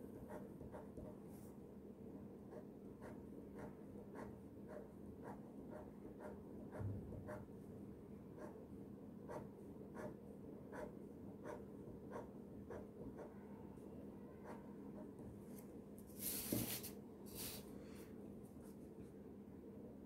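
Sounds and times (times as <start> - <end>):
pen scratching on paper: 0.2 - 1.2, 2.5 - 7.5, 9.3 - 13.4.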